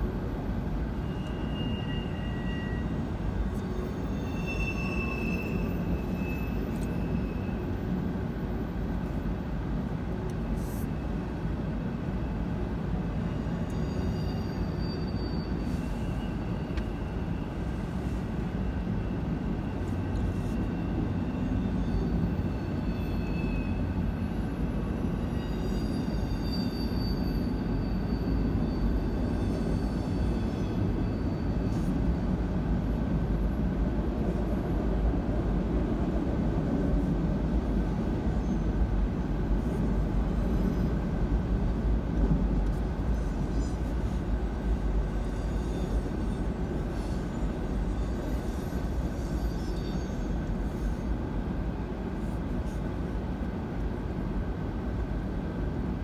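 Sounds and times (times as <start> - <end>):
train wheels rumbling on rails: 0.0 - 56.0
high wheel squeals: 0.2 - 8.7, 13.1 - 33.0, 38.0 - 41.4, 42.7 - 51.4.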